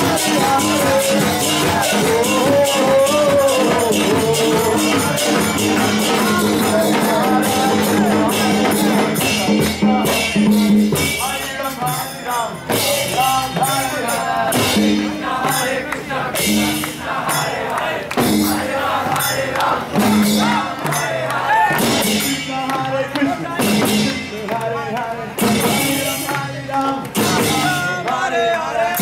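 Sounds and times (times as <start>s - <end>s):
person singing: 0.0s - 10.6s
jingling percussion: 0.0s - 29.0s.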